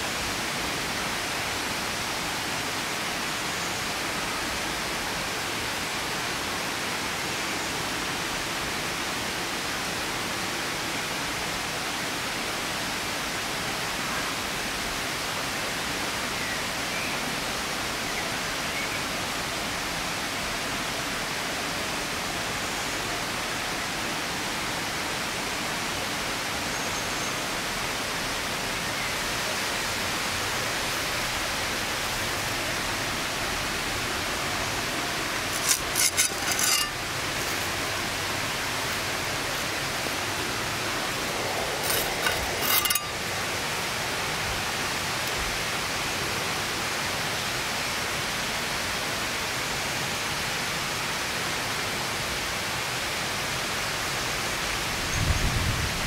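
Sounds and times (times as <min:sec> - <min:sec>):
steady background hiss: 0:36.6 - 0:55.2.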